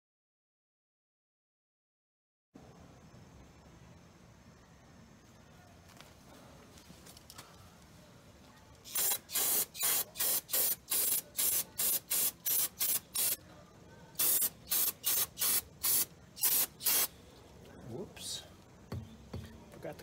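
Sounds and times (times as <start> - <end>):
aerosol spray hissing bursts: 8.9 - 13.4, 14.2 - 17.1.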